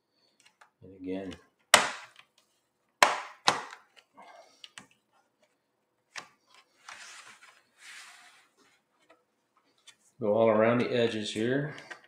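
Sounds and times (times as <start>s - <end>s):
rustling scrape of laptop handling: 6.5s - 8.9s.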